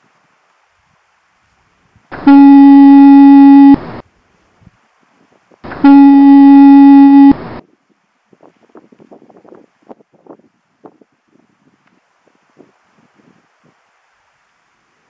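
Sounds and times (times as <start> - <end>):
foghorn blasts: 2.2 - 3.9, 5.7 - 7.6.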